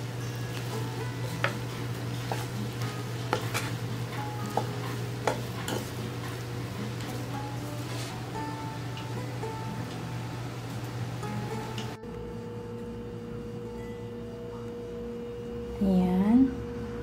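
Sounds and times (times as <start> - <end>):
spatula scraping a frying pan: 1.2 - 3.8, 4.5 - 6.4.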